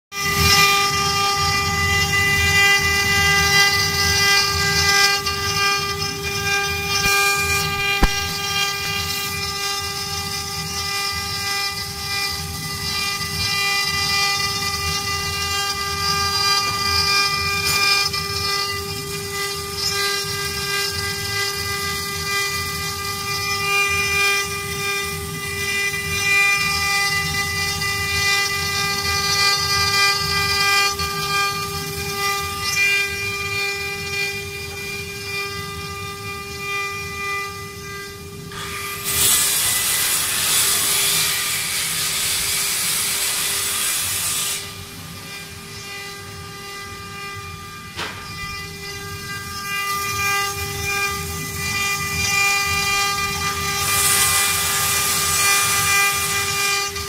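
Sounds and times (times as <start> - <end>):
low rumble of wood cutting: 0.2 - 23.8
router spindles whining: 0.2 - 57.0.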